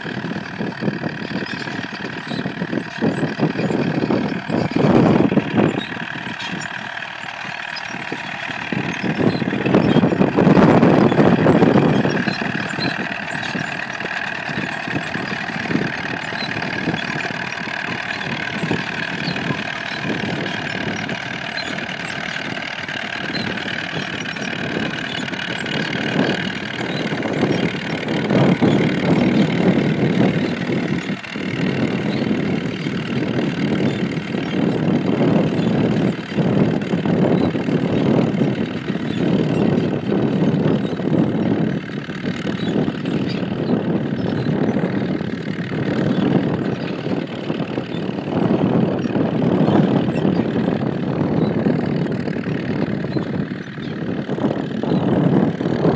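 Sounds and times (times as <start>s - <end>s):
tractor engine under load: 0.0s - 55.9s.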